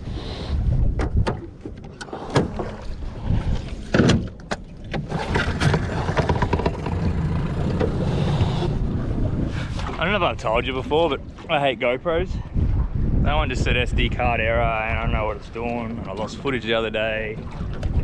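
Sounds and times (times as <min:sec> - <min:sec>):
boat motor rumbling: 0:00.0 - 0:18.0
gear knocking against hull: 0:03.9 - 0:08.6.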